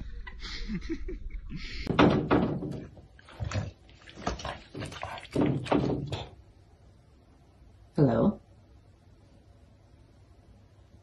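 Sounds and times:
knocks against glass: 1.9s - 2.9s.

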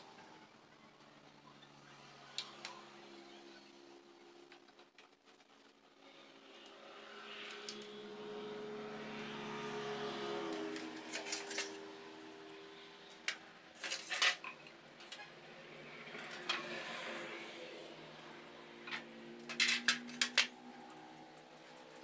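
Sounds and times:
vehicle engine droning: 5.8s - 13.8s, 14.5s - 22.0s
metal pieces knocking and clinking: 10.6s - 11.8s, 13.1s - 15.4s, 16.0s - 16.8s, 18.8s - 20.7s.

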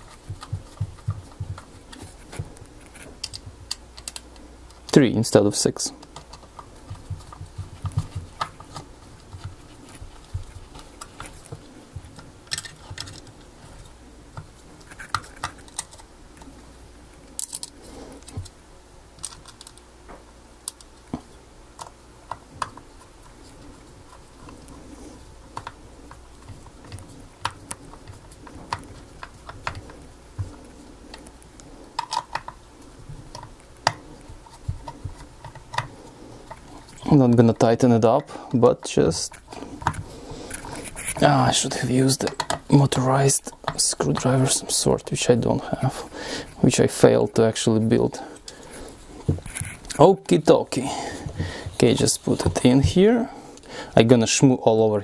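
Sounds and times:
metal parts clicking and scraping: 12.4s - 13.9s, 17.4s - 18.5s.

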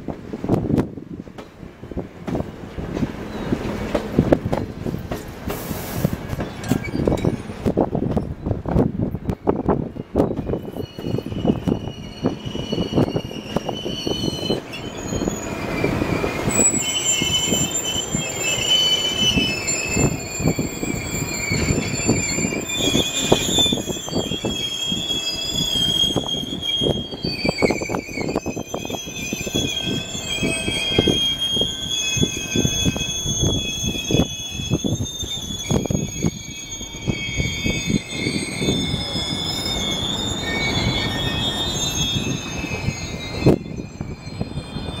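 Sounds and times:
wheels clunking on rail joints: 0.0s - 45.0s
train wheels squealing: 3.2s - 45.0s.

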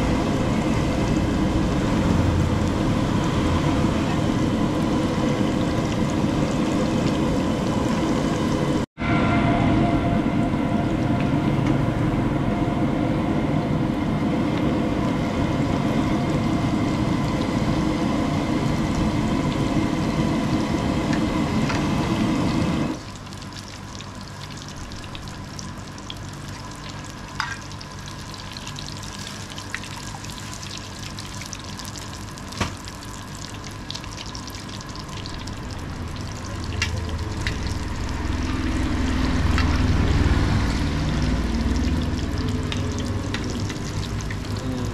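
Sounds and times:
food deep-frying in hot oil: 0.0s - 8.9s, 13.6s - 44.9s
loud rumble with hum: 0.0s - 23.0s, 28.0s - 44.9s
low rumble: 35.4s - 44.9s.

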